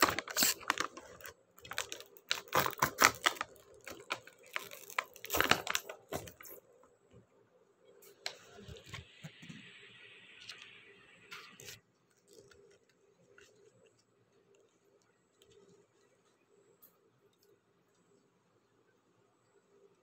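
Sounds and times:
foil lid crinkling: 0.0 - 6.6.

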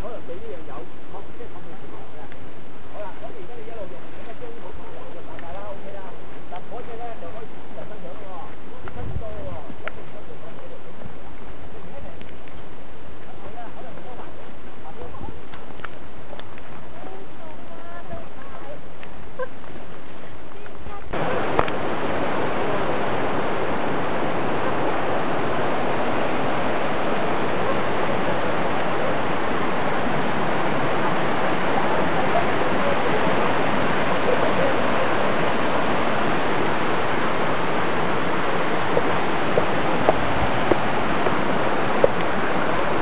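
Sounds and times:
rushing water: 0.0 - 43.0.

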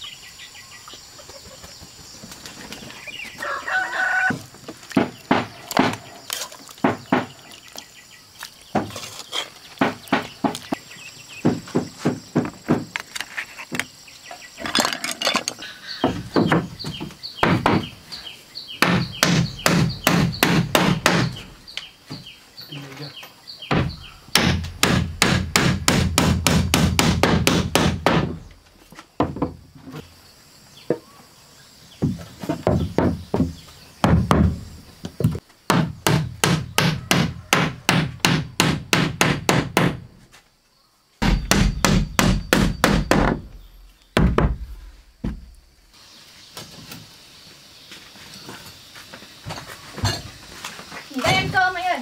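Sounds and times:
hammer driving nails into wood: 18.8 - 21.4, 23.7 - 28.4, 35.7 - 40.1, 41.2 - 43.5.

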